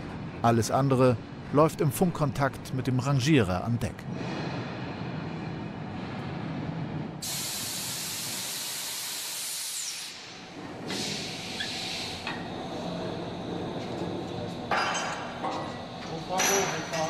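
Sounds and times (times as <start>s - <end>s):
compressed air hissing: 7.2s - 12.3s.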